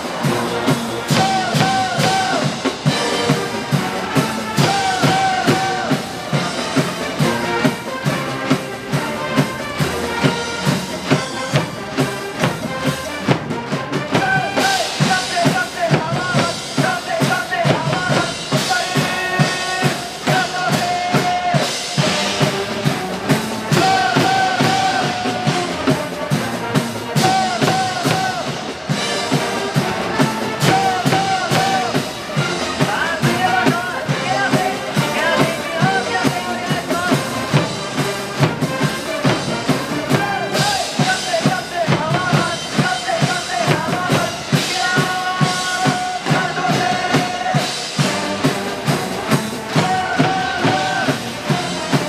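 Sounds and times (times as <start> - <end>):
band playing a cheer song: 0.0 - 52.0
pounding drum beat: 0.0 - 52.0.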